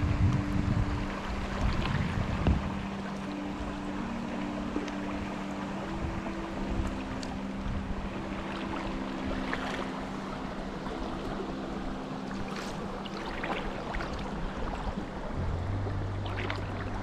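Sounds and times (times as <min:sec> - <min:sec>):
rain falling on water: 0:00.0 - 0:05.6
paddle splashes: 0:00.3 - 0:17.0.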